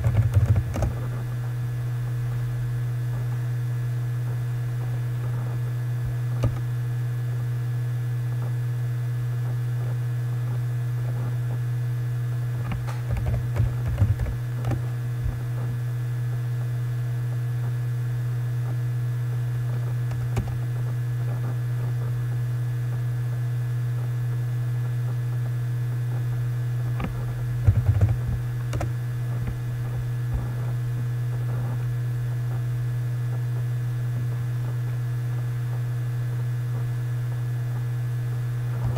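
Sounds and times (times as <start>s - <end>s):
computer keyboard typing: 0.0s - 0.9s, 12.7s - 14.8s, 27.6s - 28.9s
low electrical hum: 0.0s - 38.9s.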